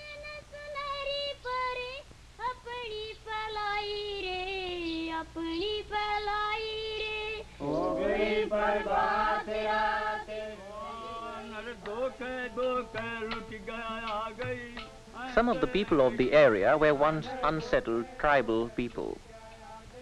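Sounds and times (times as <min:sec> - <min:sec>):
high solo voice singing: 0:06.9 - 0:20.0
choir singing: 0:07.6 - 0:20.0.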